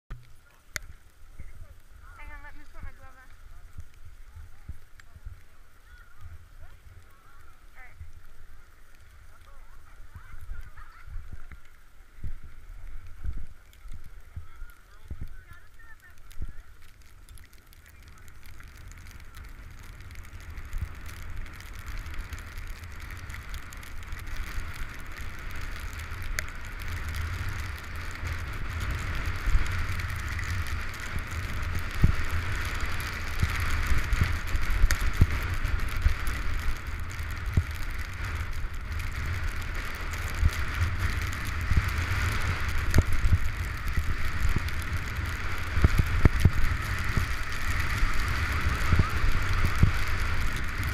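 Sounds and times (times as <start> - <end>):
wind buffeting microphone: 0.1 - 50.9
skis scraping over snow: 0.4 - 50.9.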